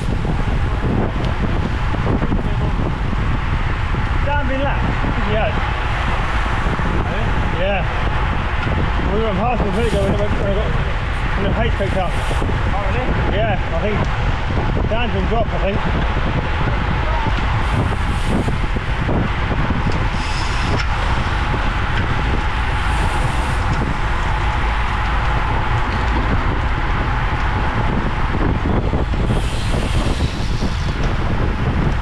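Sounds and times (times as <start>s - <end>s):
wind buffeting microphone: 0.0s - 32.0s
sharp hiss: 20.2s - 21.0s, 29.3s - 31.0s.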